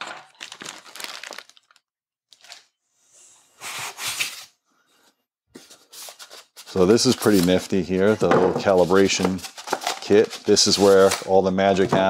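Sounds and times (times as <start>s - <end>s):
packing foam rustling: 0.2s - 1.8s.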